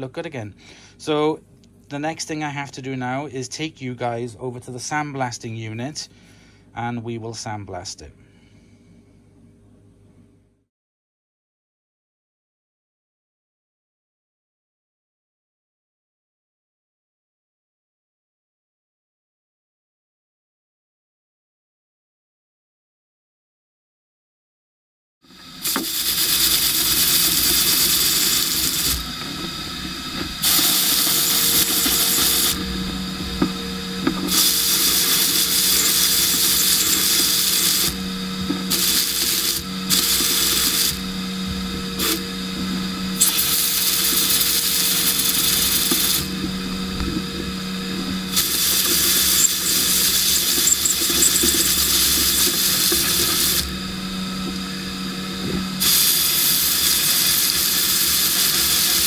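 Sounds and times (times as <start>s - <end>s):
steady machine hum: 25.3s - 59.0s
sandblast gun hissing: 25.5s - 42.4s, 43.0s - 46.8s, 48.3s - 53.8s, 55.8s - 59.0s.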